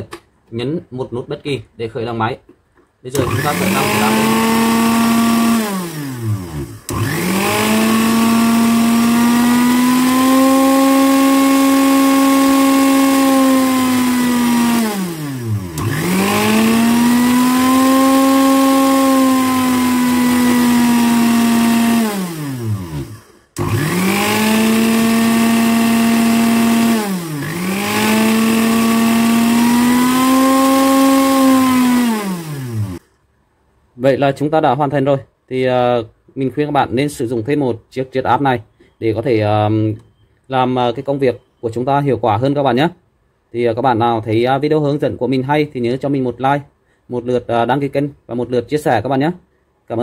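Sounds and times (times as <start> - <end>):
blender motor whining: 3.1 - 33.0.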